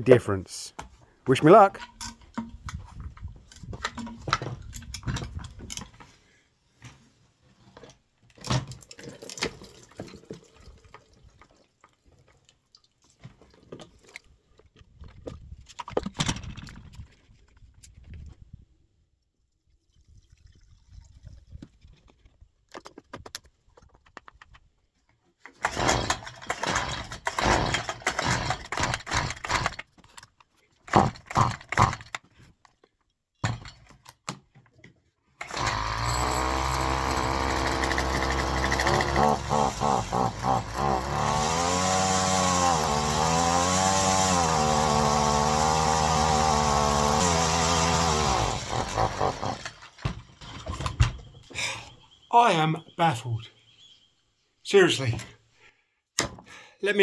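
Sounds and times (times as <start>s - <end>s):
fuel pouring and sloshing: 8.8s - 13.5s, 19.4s - 21.8s
recoil starter cord pulls: 35.4s - 42.4s.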